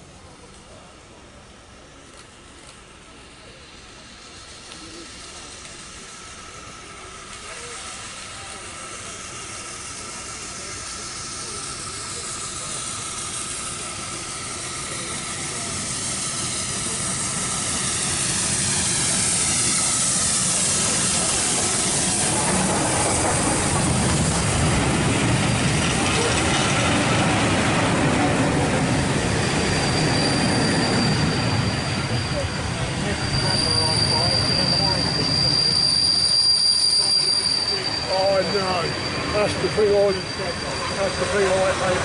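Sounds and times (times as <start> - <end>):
steam locomotive passing: 0.0 - 42.0
steam hissing: 0.1 - 42.0
train coaches clattering on rails: 3.9 - 42.0.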